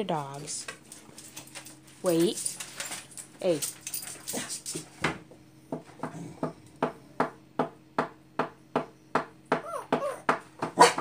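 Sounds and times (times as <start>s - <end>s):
dog whining: 9.5s - 11.0s.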